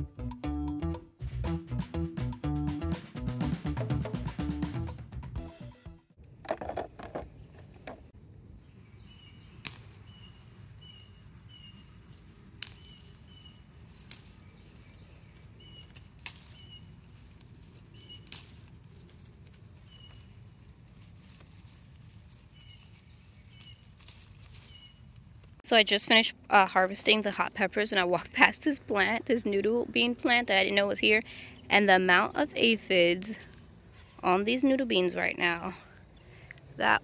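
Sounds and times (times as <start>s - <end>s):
bird chirping: 8.5s - 17.2s, 17.8s - 18.5s, 19.8s - 20.4s, 22.4s - 25.1s
pepper stems snapping: 9.5s - 25.6s.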